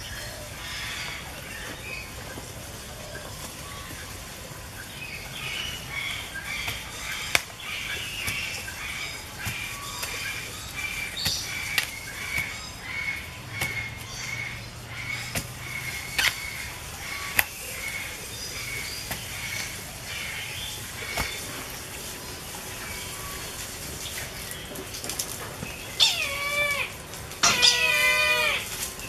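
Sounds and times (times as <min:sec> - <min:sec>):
bird chirping: 0:25.6 - 0:29.0.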